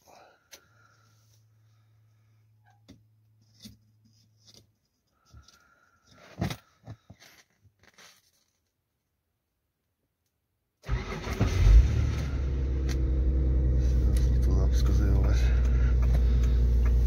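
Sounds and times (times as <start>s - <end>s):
faint steady hum: 11.8s - 17.0s.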